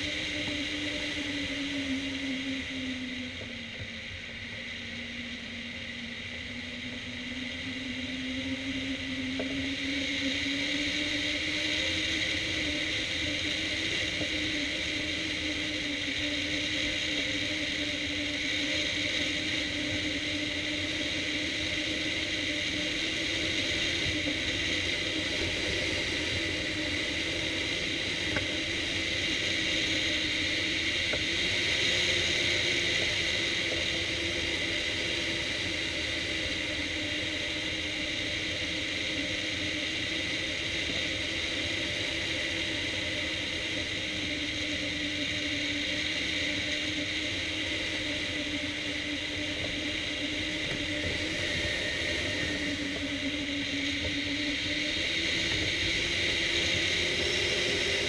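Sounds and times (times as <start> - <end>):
low hum changing pitch: 49.0 - 58.0.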